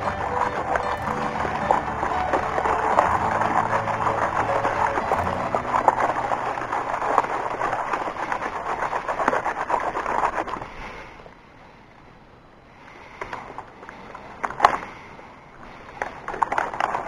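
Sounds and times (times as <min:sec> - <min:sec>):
sand swirling gritty crackle: 0:00.0 - 0:11.3, 0:15.7 - 0:17.0.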